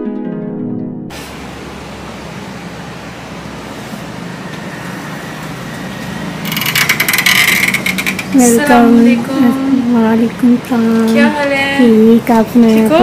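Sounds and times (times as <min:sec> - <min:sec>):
street traffic: 0:01.1 - 0:13.0
glass door opening with clatter: 0:06.4 - 0:08.7.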